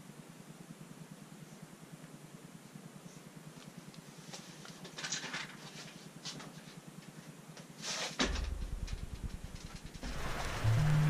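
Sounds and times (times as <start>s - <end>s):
low steady hum: 8.2s - 11.0s.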